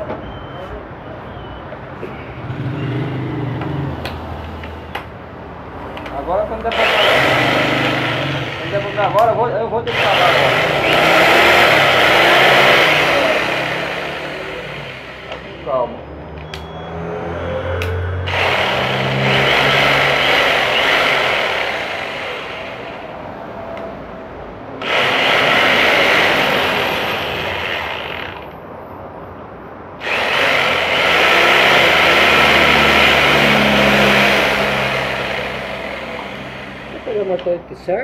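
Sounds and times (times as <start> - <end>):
rotary hammer drilling into wood: 6.7 - 9.3, 9.9 - 15.6, 18.3 - 23.1, 24.8 - 28.6, 30.0 - 37.3.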